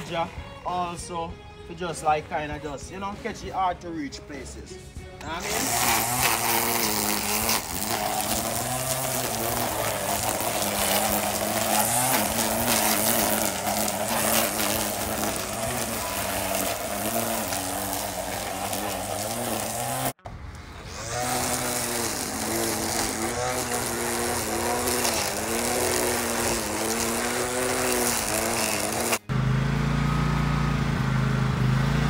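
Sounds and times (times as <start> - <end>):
string trimmer cutting grass: 0.0 - 3.1, 5.2 - 32.0.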